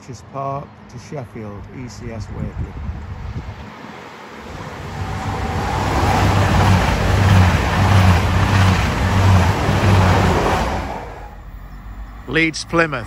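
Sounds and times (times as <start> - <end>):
diesel train passing: 1.6 - 13.0
low pulsing throb: 4.5 - 11.9.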